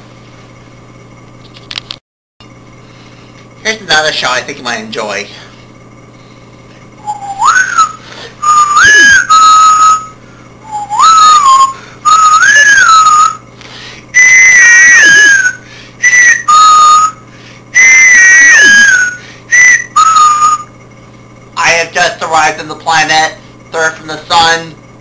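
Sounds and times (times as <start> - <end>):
loud whistled tune: 7.0 - 13.5, 14.1 - 20.8.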